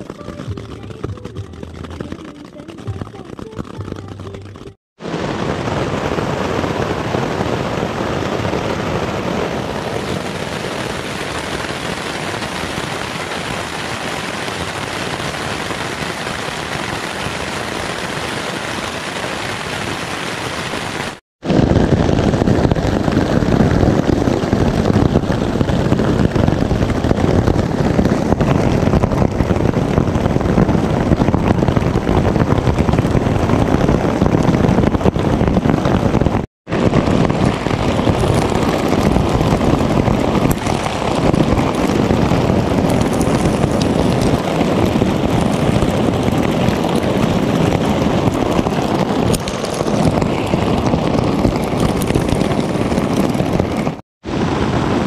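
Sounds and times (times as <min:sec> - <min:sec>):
rain and hail falling: 0:05.0 - 0:55.0
wind buffeting microphone: 0:05.0 - 0:55.0.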